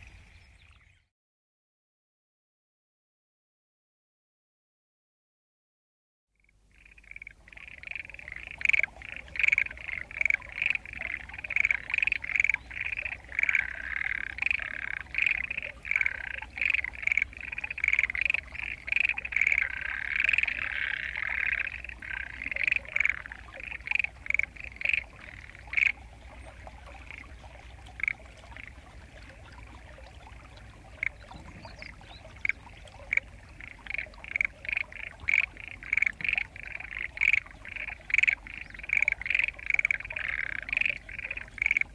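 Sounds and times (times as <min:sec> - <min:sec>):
frogs croaking: 0:06.4 - 0:41.9.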